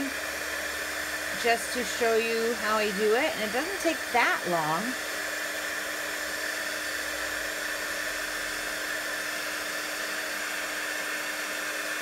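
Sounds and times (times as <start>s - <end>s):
heat gun blowing: 0.0s - 12.0s.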